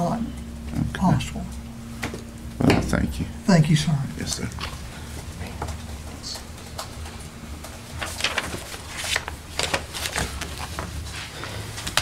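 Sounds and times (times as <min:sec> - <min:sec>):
low room hum: 0:00.0 - 0:12.0
paper rustling: 0:07.8 - 0:12.0.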